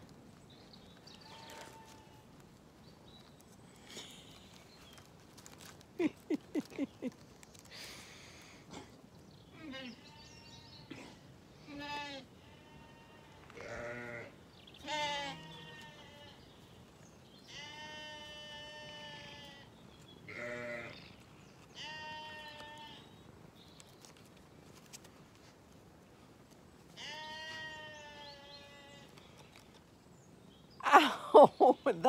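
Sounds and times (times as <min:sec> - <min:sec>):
sheep bleating: 0:11.7 - 0:16.4, 0:17.5 - 0:19.7, 0:20.3 - 0:21.0, 0:21.8 - 0:23.0, 0:27.0 - 0:29.1.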